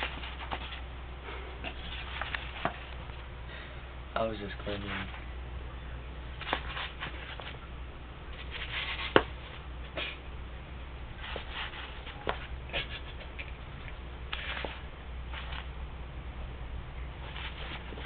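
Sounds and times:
scratchy rustles on cardboard: 0.0 - 0.9, 1.7 - 3.0, 4.7 - 5.2, 6.4 - 7.6, 8.3 - 9.6, 11.2 - 13.4, 14.3 - 15.7, 17.2 - 18.0.

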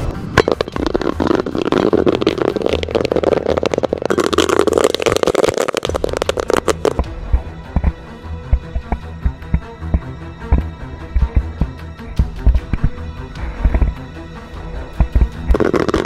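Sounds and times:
rushing flame noise: 0.0 - 7.1
flame crackling and popping: 0.0 - 7.2, 15.0 - 16.0.

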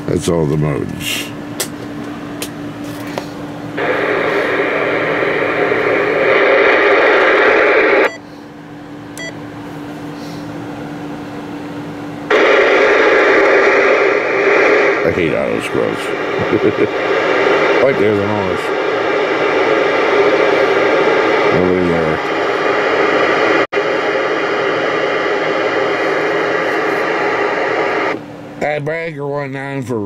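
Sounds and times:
steady hum: 0.0 - 30.0
radio static hiss: 3.8 - 8.2, 12.3 - 28.2.

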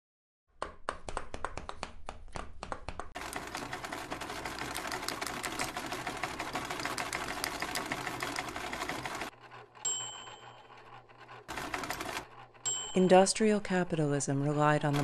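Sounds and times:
embroidery machine needle clatter: 3.2 - 9.8, 10.7 - 12.6, 14.4 - 15.0.

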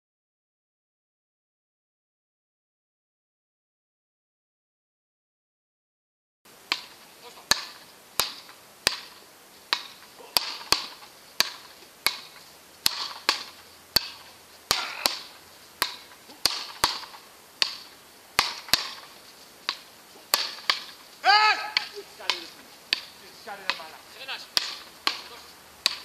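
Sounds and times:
paddle rackets hitting ball: 6.6 - 26.0.

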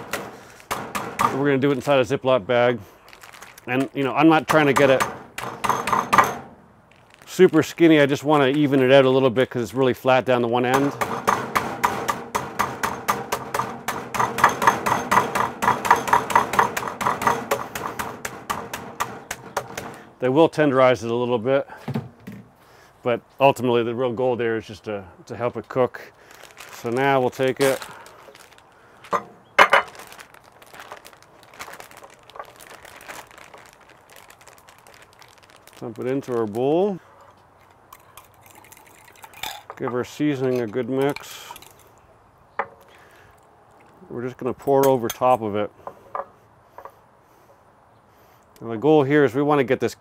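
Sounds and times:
plastic bag crinkling: 0.0 - 9.0, 26.2 - 37.0, 37.6 - 39.5
meat mallet pounding chicken: 10.8 - 20.0.

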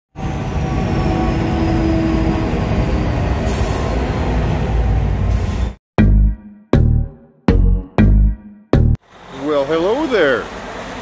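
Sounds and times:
road and wind noise: 0.1 - 5.8, 9.0 - 11.0
diesel engine drone: 9.0 - 11.0.

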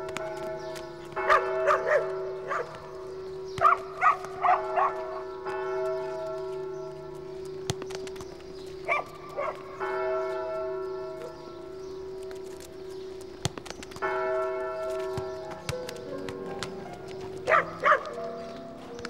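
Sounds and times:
church bell tolling: 0.0 - 13.4, 14.0 - 19.0
dog barking: 1.3 - 2.9, 3.6 - 5.2, 8.9 - 9.7, 17.4 - 18.3.

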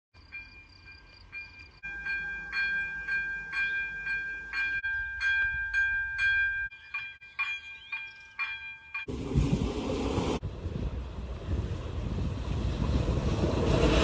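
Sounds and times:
level-crossing warning bells: 0.2 - 9.1.

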